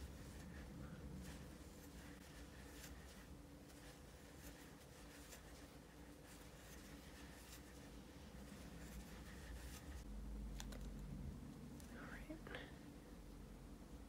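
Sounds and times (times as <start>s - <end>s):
yarn rustling: 0.0s - 11.0s
low steady hum: 0.0s - 14.0s.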